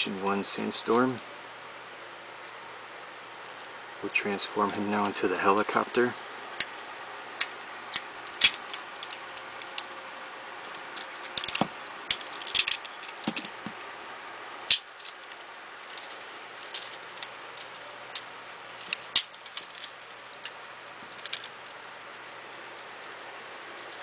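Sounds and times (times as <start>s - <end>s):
plastic toy parts clicking: 7.4s - 9.9s, 10.7s - 13.8s, 16.0s - 21.8s
plastic toy snapping: 7.4s - 9.9s.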